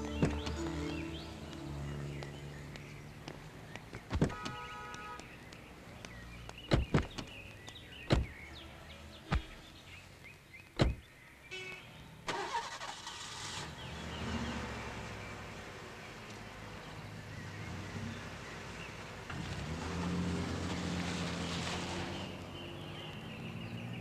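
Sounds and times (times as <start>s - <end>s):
car doors slamming: 6.7s - 7.2s, 8.1s - 8.4s, 10.8s - 11.1s
car engine starting: 12.2s - 24.0s.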